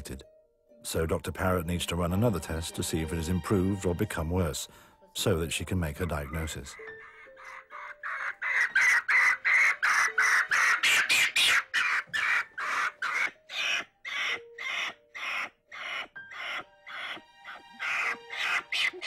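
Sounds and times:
monkey screeching: 6.1 - 19.0.

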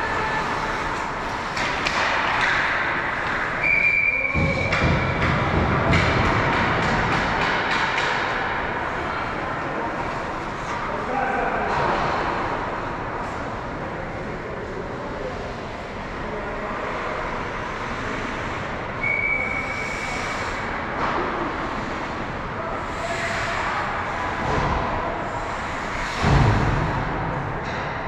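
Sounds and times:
skates and sticks on ice: 0.0 - 3.7, 4.3 - 8.6
loud heavy thump: 26.2 - 27.5.

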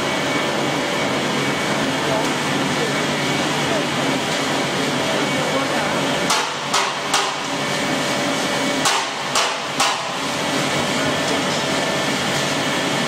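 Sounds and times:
machinery hum and hiss: 0.0 - 13.0
sharp knocks: 8.8 - 10.2.

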